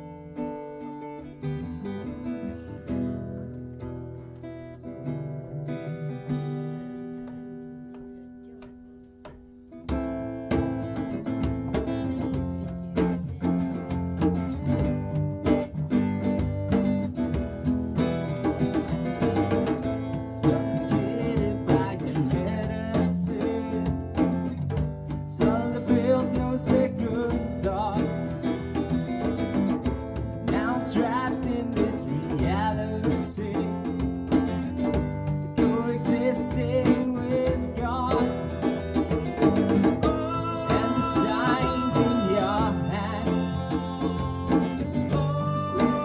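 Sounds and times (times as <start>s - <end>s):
plucked string instrument: 0.0s - 46.0s
strummed acoustic guitar: 0.0s - 46.0s
djembe played by hand: 8.6s - 46.0s
person singing: 19.6s - 24.3s, 25.2s - 28.7s, 30.2s - 34.2s, 35.5s - 38.8s, 39.8s - 46.0s.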